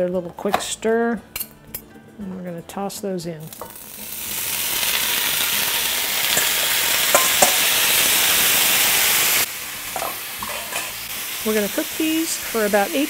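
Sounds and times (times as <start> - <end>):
vegetables sizzling in oil: 3.5 - 13.0.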